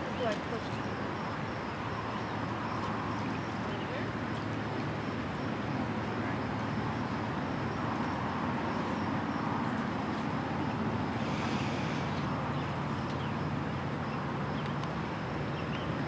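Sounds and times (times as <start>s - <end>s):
river water rushing: 0.0s - 16.0s
wind: 0.0s - 16.0s.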